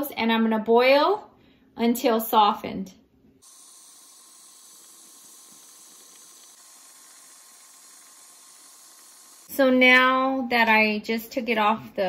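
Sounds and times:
water boiling in saucepan: 3.4 - 9.5.

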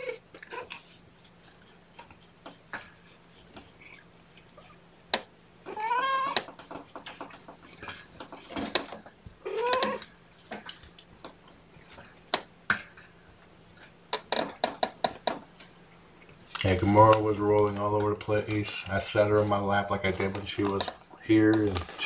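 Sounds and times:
cat meowing: 5.7 - 6.4, 9.4 - 10.0.

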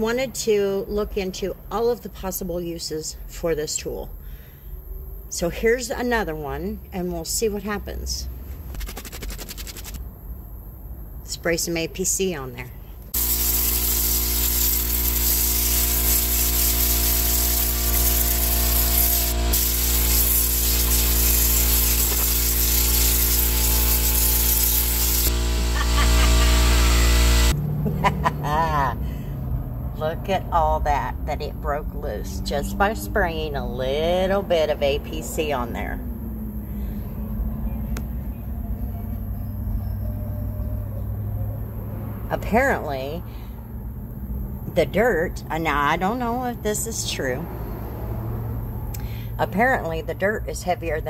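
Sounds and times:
steady hum: 13.0 - 27.6
compressed air gun hissing: 13.2 - 27.5.

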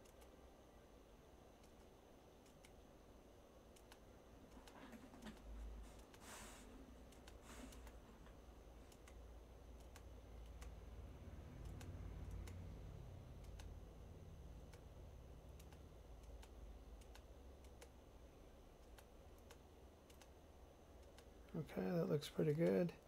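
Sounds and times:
computer mouse clicks: 0.0 - 0.4, 1.6 - 2.8, 3.7 - 6.2, 7.0 - 10.8, 11.4 - 13.8, 14.6 - 14.9, 15.5 - 18.0, 18.8 - 20.4, 21.0 - 21.6
low room hum: 0.0 - 23.0.

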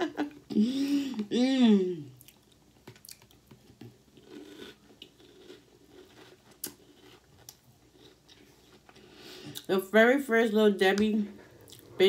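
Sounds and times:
chewing crunchy cereal: 2.2 - 9.7.

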